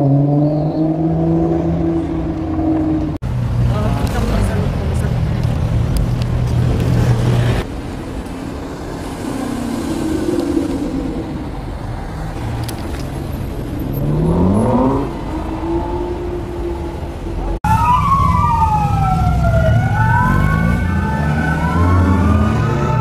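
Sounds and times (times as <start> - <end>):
siren wailing: 14.7 - 23.0.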